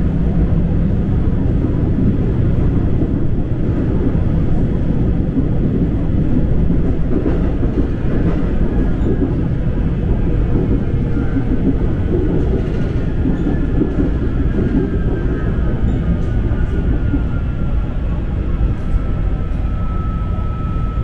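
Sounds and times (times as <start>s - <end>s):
train wheels rumbling on rail: 0.0s - 21.0s
faint high whine: 17.3s - 21.0s.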